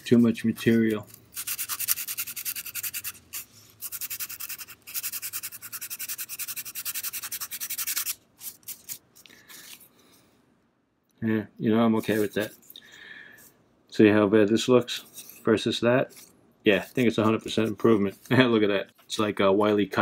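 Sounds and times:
sandpaper rubbing wood: 0.0 - 9.0.

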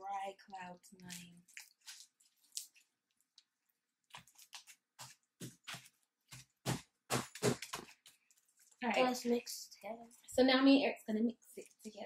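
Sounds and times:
slime squishing by hand: 0.6 - 9.2.

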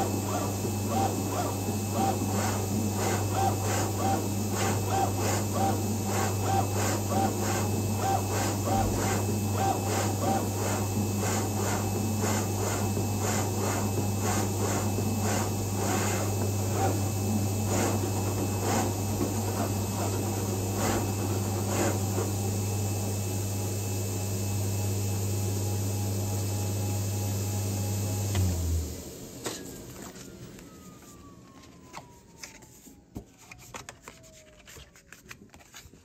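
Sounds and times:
machine hum: 0.0 - 22.8.

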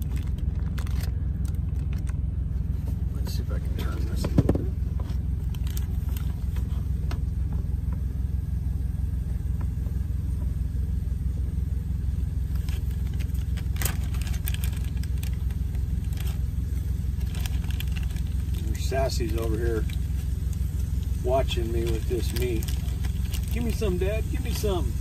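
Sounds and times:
plastic bag rustling: 0.0 - 2.1, 12.5 - 16.5, 17.2 - 20.3, 21.0 - 23.9
steady low hum: 0.0 - 25.0.

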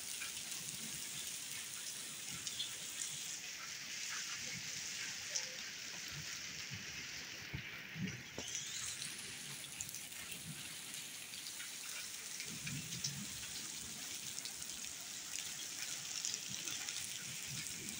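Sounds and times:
heavy rain hissing: 2.4 - 11.2.

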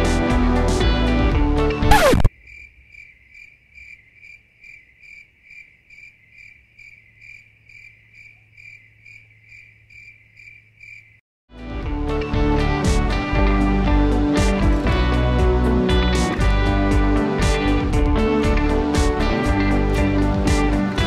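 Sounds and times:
music: 0.0 - 2.3, 11.5 - 21.0
falling sweep: 1.9 - 2.3
cricket chirps: 2.3 - 11.2.

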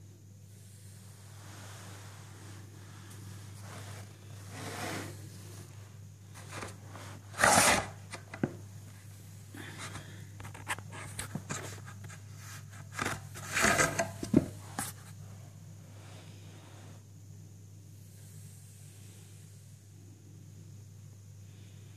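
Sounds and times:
steady low hum: 0.0 - 21.9
soft rubbing and brushing: 0.5 - 7.6.

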